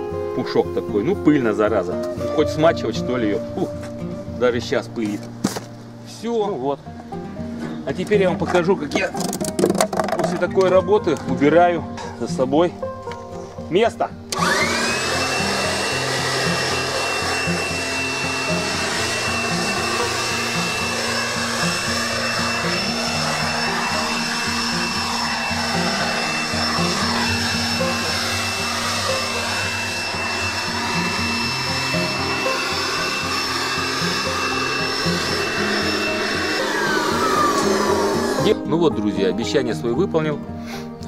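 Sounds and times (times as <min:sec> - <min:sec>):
electric blower whining: 0:14.2 - 0:38.7.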